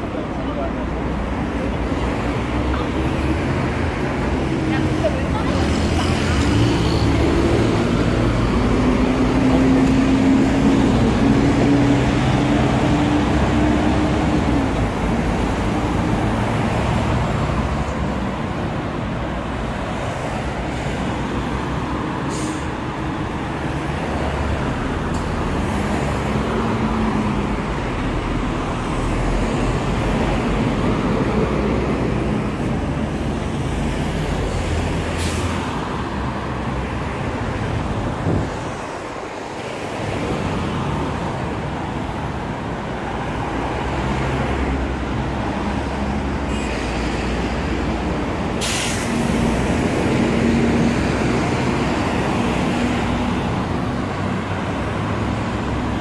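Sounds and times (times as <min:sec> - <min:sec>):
road traffic rumble: 0:00.0 - 0:56.0
short sharp hisses: 0:48.6 - 0:49.3.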